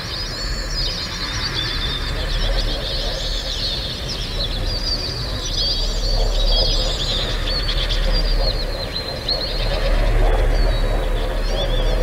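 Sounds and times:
steady low rumble: 5.2 - 12.0.

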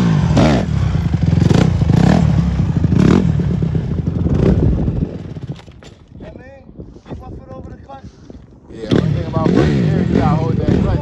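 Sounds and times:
dirt bike engine revving: 0.0 - 5.5, 8.8 - 11.0.

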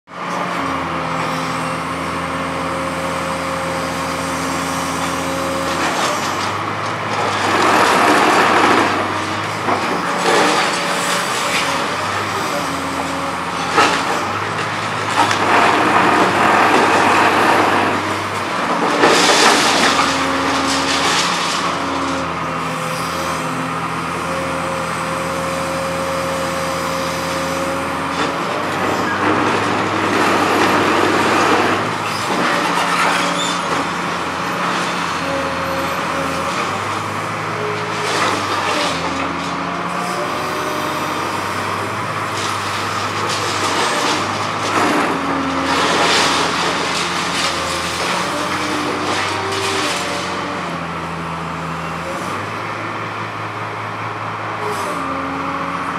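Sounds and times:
excavator engine and hydraulics: 0.1 - 55.9
concrete breaking and rubble falling: 5.7 - 22.2, 42.5 - 50.5.

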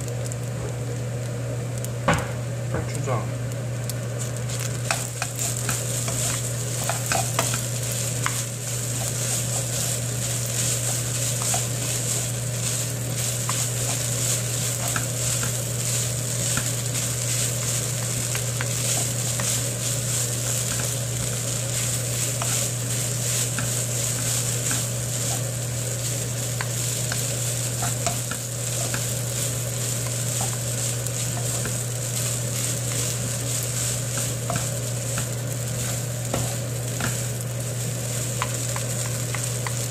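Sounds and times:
rice sizzling in a frying pan: 0.0 - 39.9
steady low hum: 0.0 - 39.9
utensils ticking against pan: 4.8 - 22.6, 26.5 - 31.8, 38.4 - 39.9
spatula scraping a pan: 4.8 - 37.4.

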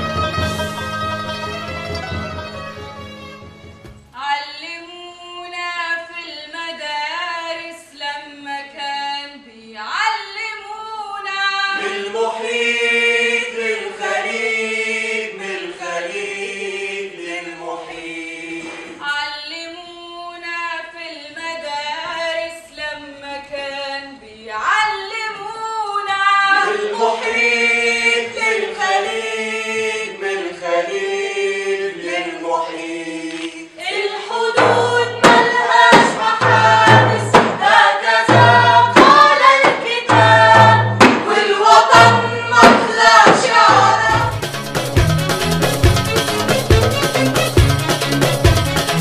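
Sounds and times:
group singing a cappella: 9.6 - 19.3, 21.3 - 44.5
deep regular beat: 38.3 - 39.4, 43.6 - 49.0.

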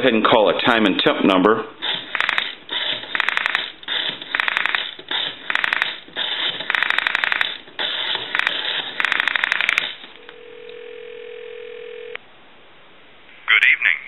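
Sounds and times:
rotary telephone dial clicking: 2.1 - 6.0, 6.6 - 7.6, 8.3 - 10.0.

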